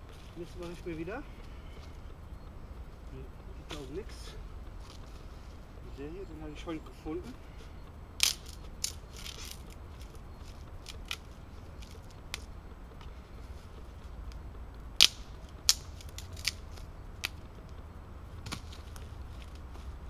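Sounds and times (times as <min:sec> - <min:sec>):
wood snapping and cracking: 0:07.8 - 0:20.0.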